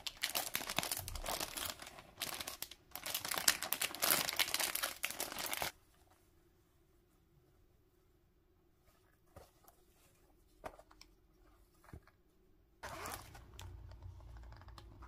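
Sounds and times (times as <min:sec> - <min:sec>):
plastic packaging crinkling: 0:00.0 - 0:05.7.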